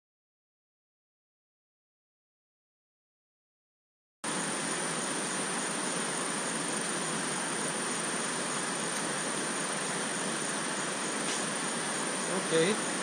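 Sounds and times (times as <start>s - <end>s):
creek water rushing: 4.3s - 13.0s.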